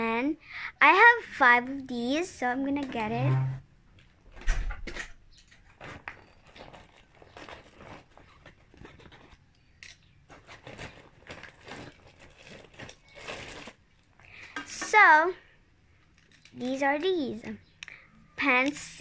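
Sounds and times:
packaging rustling and crinkling: 0:05.4 - 0:14.2.

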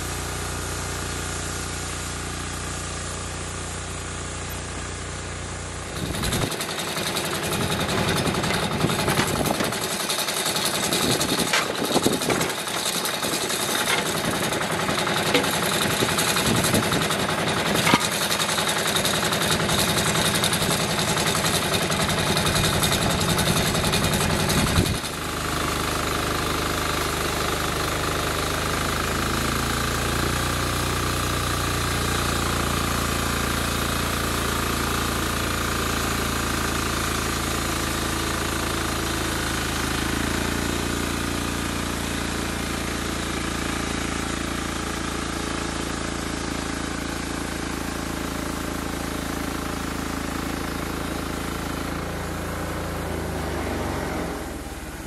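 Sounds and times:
sawmill engine rattling: 0:00.0 - 0:55.0
band blade sawing log: 0:06.0 - 0:25.0.

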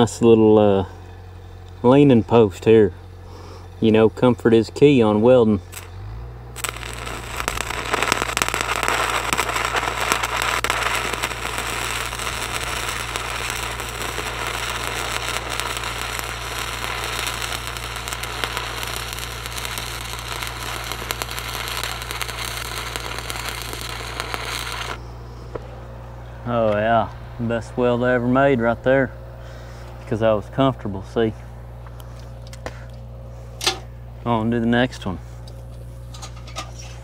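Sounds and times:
low hum: 0:00.0 - 0:37.0
welding arc crackling: 0:05.6 - 0:25.8.

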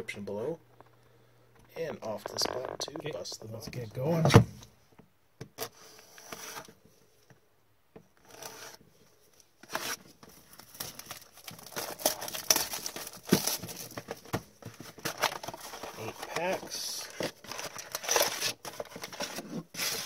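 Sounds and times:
plastic wrap crinkling: 0:09.8 - 0:20.0.

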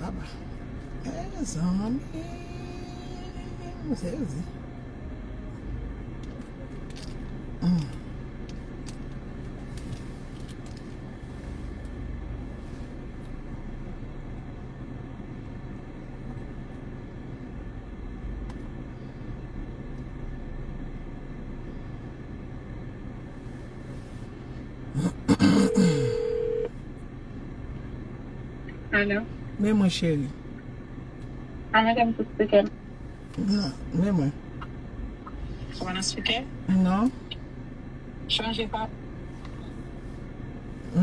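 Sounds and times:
phone dialing tone: 0:25.6 - 0:26.7.

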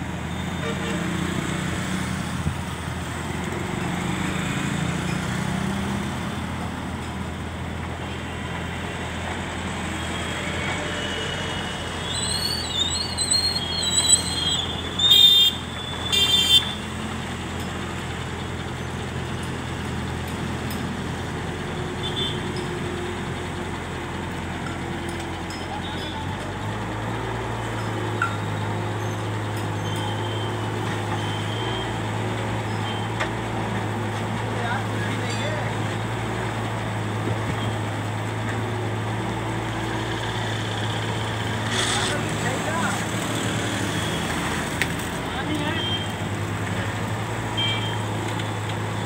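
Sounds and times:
diesel engine running: 0:00.0 - 0:49.0
vehicle horn honks: 0:15.0 - 0:16.8, 0:22.0 - 0:22.4, 0:47.6 - 0:48.0.

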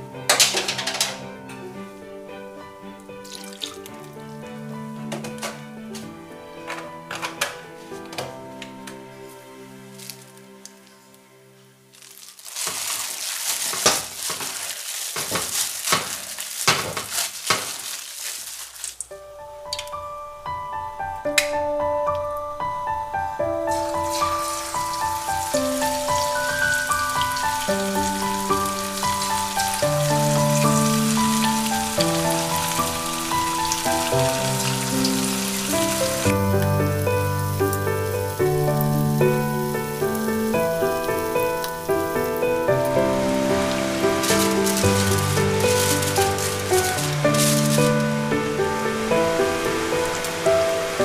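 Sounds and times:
background music: 0:00.0 - 0:13.0, 0:19.1 - 0:51.0
plastic bag rustling: 0:03.0 - 0:19.2, 0:23.6 - 0:51.0
kneading wet batter: 0:03.2 - 0:04.4, 0:12.0 - 0:19.1, 0:43.8 - 0:48.5
chicken sizzling in hot oil: 0:11.9 - 0:19.1, 0:23.7 - 0:51.0.

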